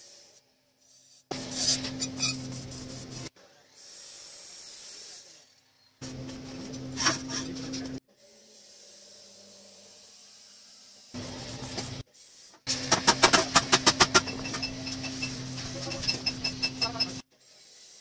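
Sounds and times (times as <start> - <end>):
welding arc crackling and hissing: 8.6 - 18.0.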